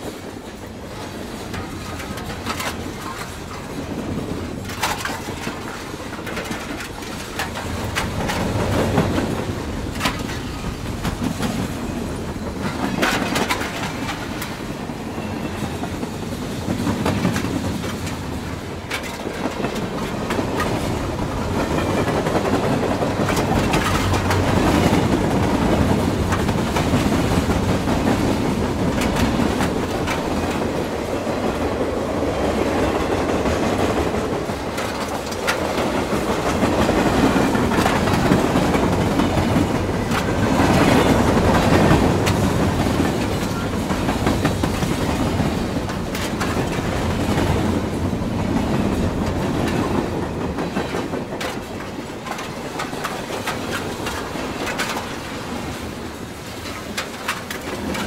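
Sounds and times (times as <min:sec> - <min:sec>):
model train wheels clicking: 0:33.3 - 0:58.0.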